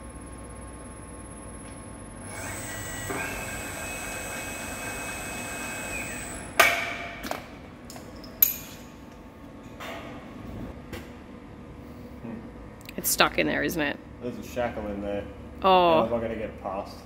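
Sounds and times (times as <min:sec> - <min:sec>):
crane hoist motor whining: 0:00.0 - 0:06.7.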